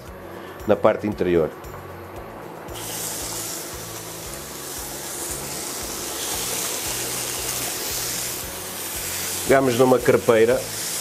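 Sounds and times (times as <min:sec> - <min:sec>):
food sizzling on a hot pan: 0:02.7 - 0:11.0.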